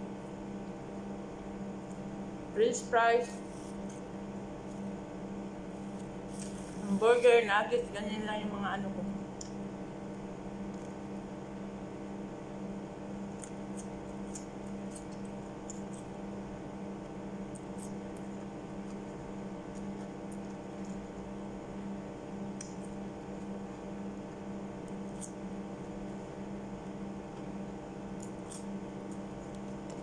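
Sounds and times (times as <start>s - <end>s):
low electrical hum: 0.0s - 30.0s.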